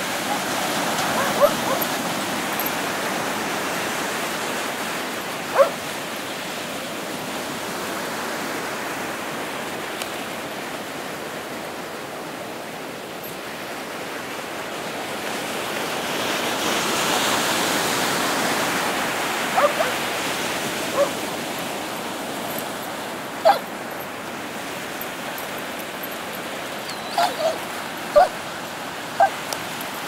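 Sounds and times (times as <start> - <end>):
ocean surf washing on beach: 0.0 - 30.0
dog bark: 0.2 - 2.0, 5.5 - 5.8, 19.5 - 20.0, 20.9 - 21.2, 23.4 - 23.7, 27.1 - 28.4, 29.2 - 29.4.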